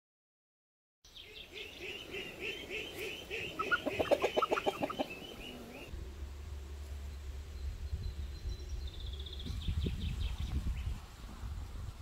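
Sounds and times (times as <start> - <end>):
hens clucking: 1.6 - 5.9.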